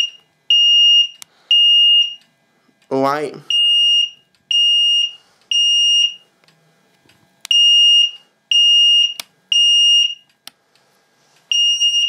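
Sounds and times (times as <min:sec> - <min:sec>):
fire alarm beeping: 0:00.0 - 0:02.3, 0:03.5 - 0:06.3, 0:07.5 - 0:10.3, 0:11.5 - 0:12.0.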